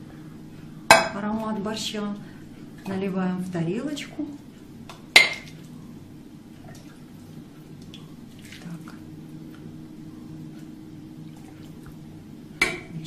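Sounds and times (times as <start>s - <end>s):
steady low hum: 0.0s - 13.0s
soup splashing and dripping: 6.7s - 8.9s.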